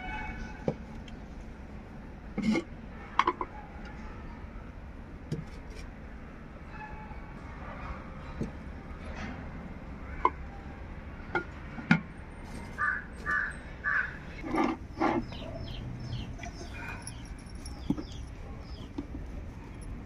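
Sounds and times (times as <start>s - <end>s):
crow cawing: 12.8s - 14.3s.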